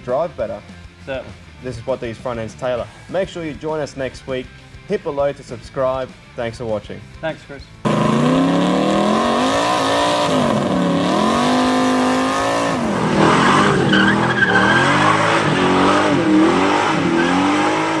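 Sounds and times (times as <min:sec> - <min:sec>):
car engine revving: 0:07.8 - 0:18.0
tyres squealing: 0:11.6 - 0:18.0.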